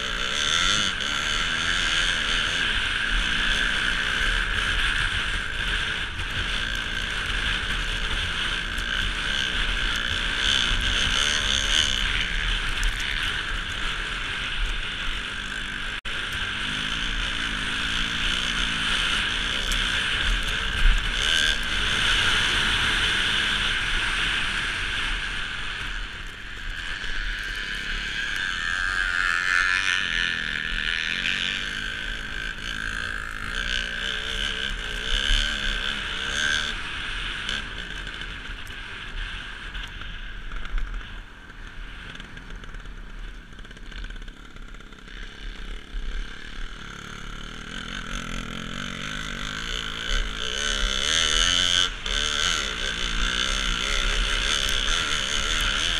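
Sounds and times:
dirt bike engine revving: 0.0s - 55.9s.

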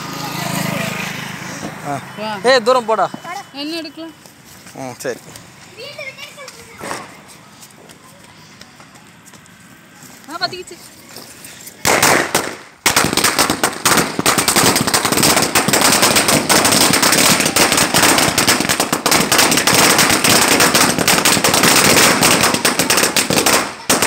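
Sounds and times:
firecracker string banging: 11.8s - 24.0s.

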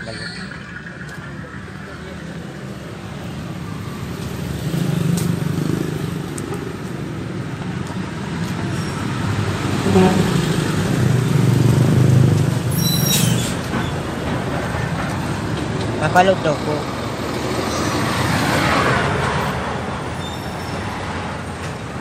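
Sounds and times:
passing vehicles rumbling: 0.0s - 22.0s
short high squeal: 12.7s - 13.6s, 20.0s - 21.0s.

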